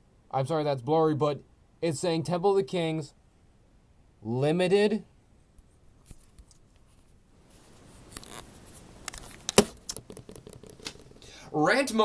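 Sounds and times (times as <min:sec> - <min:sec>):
rubbing on microphone: 0:05.5 - 0:09.4
camera handling noise: 0:08.1 - 0:11.2.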